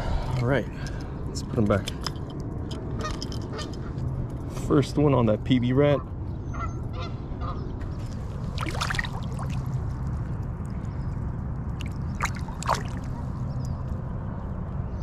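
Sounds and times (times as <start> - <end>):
steady low rumble: 0.0 - 14.8
water splashing: 8.0 - 10.1, 11.7 - 13.3.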